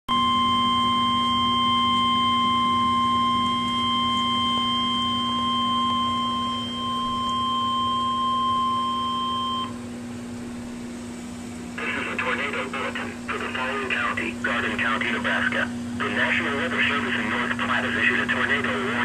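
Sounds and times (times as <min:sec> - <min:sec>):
steady piercing alarm tone: 0:00.1 - 0:09.8
low hum: 0:00.1 - 0:19.0.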